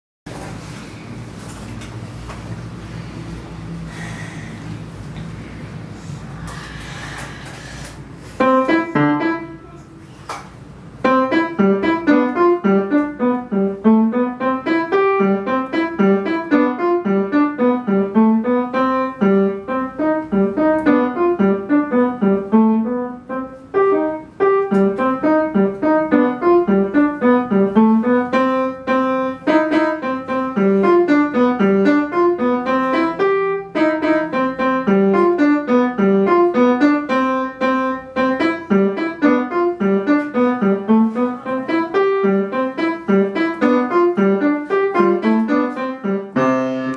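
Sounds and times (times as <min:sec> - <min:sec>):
upright piano playing quick notes: 0:08.3 - 0:46.9.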